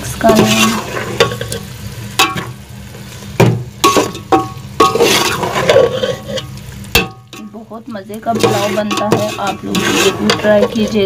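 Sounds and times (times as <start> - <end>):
meat frying sizzle: 0.0 - 11.0
metal spoon scraping pot: 0.2 - 1.6, 3.9 - 11.0.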